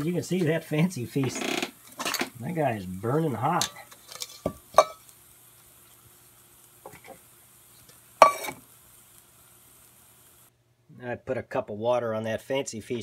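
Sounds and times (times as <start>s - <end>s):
metal cookware clinking: 3.5s - 5.1s, 8.2s - 8.6s.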